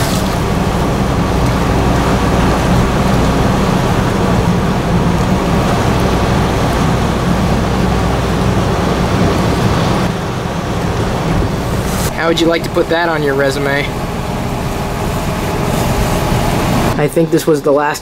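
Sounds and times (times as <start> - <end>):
low engine hum: 0.0 - 17.9.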